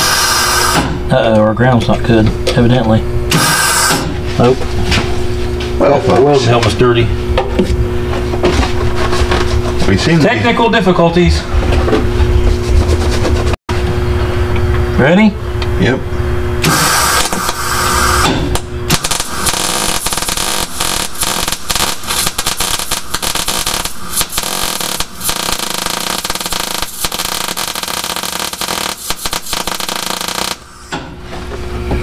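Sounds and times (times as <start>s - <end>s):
welder arc crackling: 16.6s - 30.8s.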